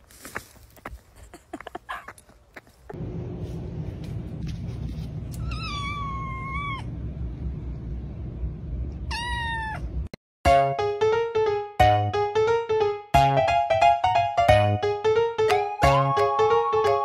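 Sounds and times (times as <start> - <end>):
steady low rumble: 2.9 - 9.1
kitten meowing: 5.3 - 6.9, 9.1 - 9.9
music: 10.5 - 17.0.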